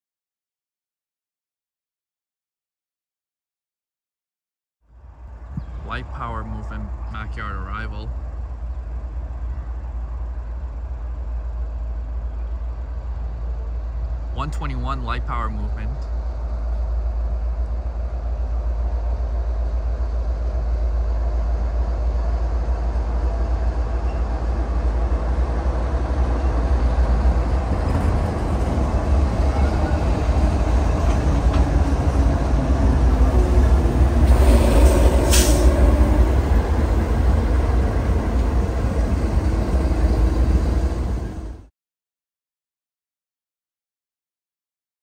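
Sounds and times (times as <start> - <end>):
diesel locomotives rumbling past: 4.9 - 41.7
sharp hiss: 34.3 - 35.8.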